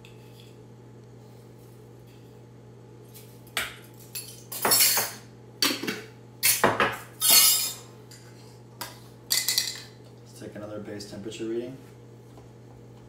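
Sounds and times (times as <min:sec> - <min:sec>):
low steady hum: 0:00.0 - 0:13.0
utensils clinking on glass and metal: 0:04.0 - 0:05.2, 0:07.2 - 0:08.2, 0:09.3 - 0:09.9.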